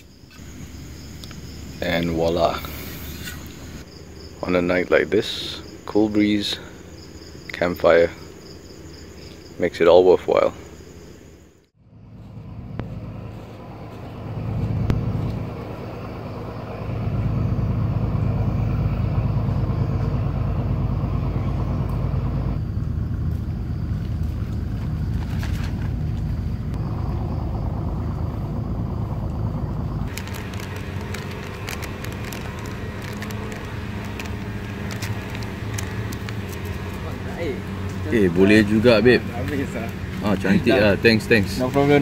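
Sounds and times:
sharp crackling clicks: 30.0 - 38.0.

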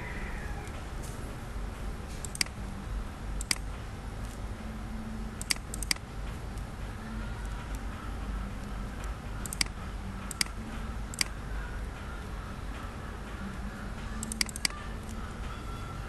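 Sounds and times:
low steady hum: 0.0 - 16.0
computer mouse button clicking: 2.2 - 2.6, 5.4 - 6.0, 9.4 - 11.4, 14.2 - 14.8.

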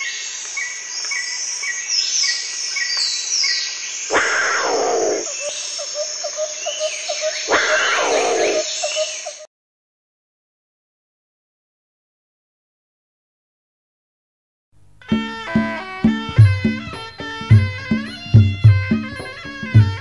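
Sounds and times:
birds chirping and whistling: 0.6 - 9.5
big cat roaring: 4.1 - 5.4, 7.5 - 8.6.

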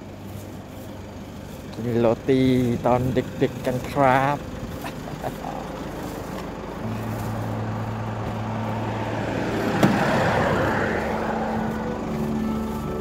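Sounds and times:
rustling: 0.0 - 2.9, 4.6 - 13.0
steady low hum: 0.0 - 13.0.

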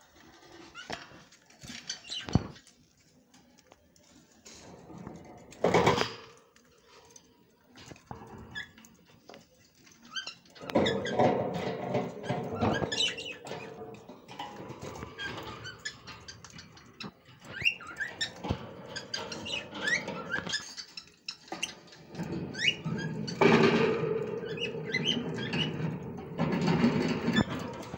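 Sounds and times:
birds chirping: 8.1 - 27.9.

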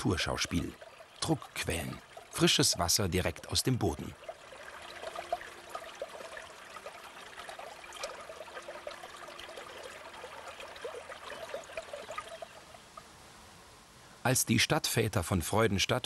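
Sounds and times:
spring water gurgling and bubbling: 0.0 - 13.1.

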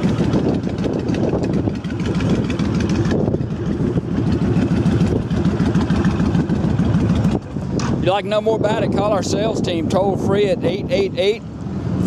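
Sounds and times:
motorcycle engine idling: 0.0 - 8.9.

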